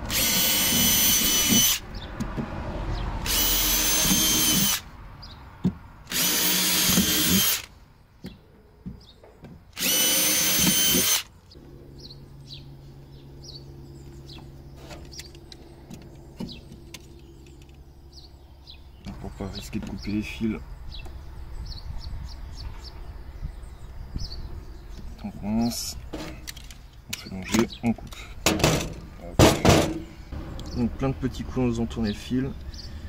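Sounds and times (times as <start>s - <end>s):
power drill running: 0.0s - 1.8s, 3.2s - 4.8s, 6.1s - 7.7s, 9.8s - 11.3s
steady low hum: 6.3s - 27.4s.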